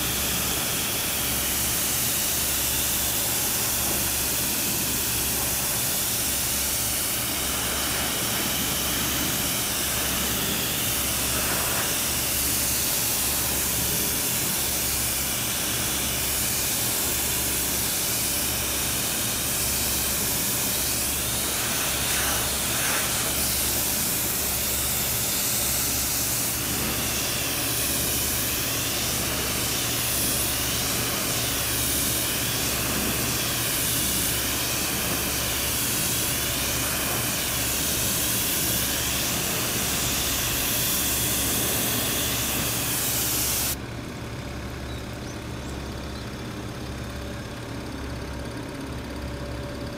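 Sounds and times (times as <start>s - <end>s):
pressure washer jet hissing: 0.0s - 43.8s.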